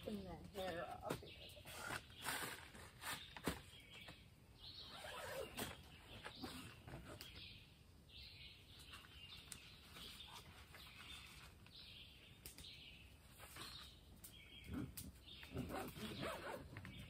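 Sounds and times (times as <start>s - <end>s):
bird raspy calls: 14.4s - 17.0s.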